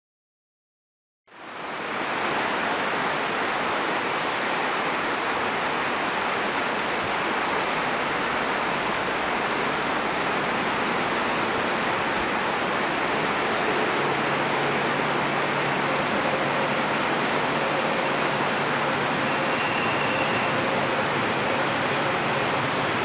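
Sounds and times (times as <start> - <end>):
river rushing over rocks: 1.4 - 23.0.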